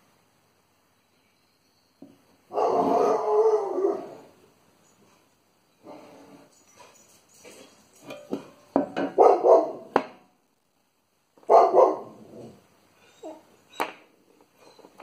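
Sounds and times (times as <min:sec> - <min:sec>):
dog barking: 0:02.5 - 0:04.2, 0:09.0 - 0:10.0, 0:11.4 - 0:12.3.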